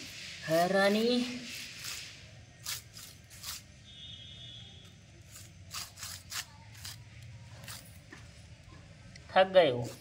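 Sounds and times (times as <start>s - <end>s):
dry grass scratching on concrete: 0.0s - 3.9s, 5.2s - 8.1s.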